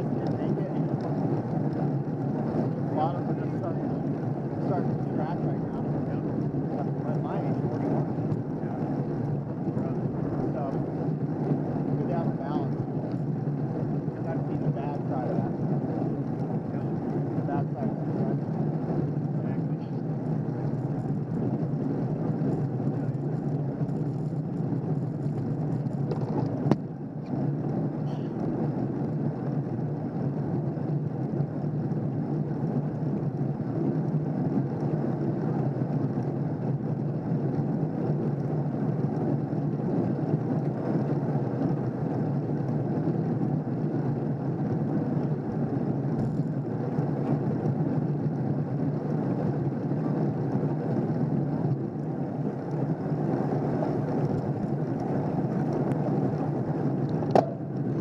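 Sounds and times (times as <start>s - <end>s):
wind and road rumble: 0.0s - 58.0s.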